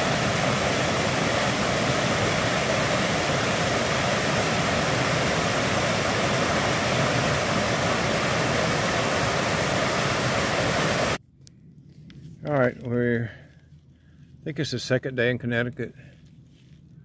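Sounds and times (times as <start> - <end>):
stream rushing over rocks: 0.0 - 11.2.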